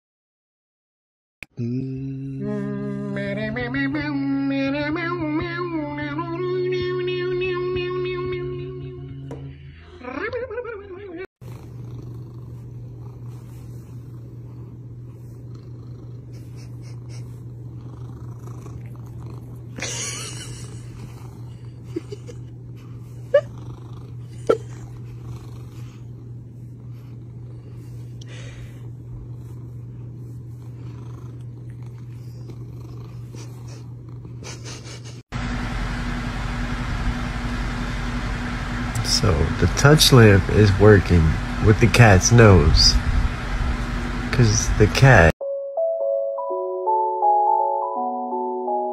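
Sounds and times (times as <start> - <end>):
cat purring: 11.4 - 19.8, 20.4 - 34.6.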